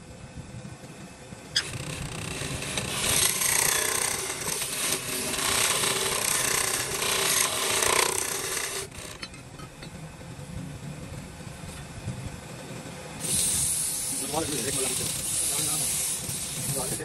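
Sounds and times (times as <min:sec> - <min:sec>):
tool rasping wood: 0:01.6 - 0:09.1, 0:13.2 - 0:17.0.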